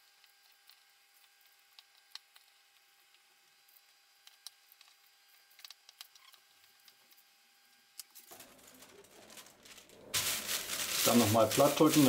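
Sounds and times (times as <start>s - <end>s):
room noise hiss: 10.1s - 12.0s.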